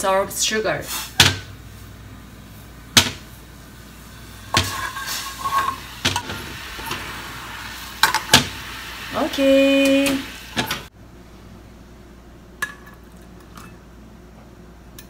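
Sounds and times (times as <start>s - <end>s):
spoon scraping pan: 4.5s - 7.0s.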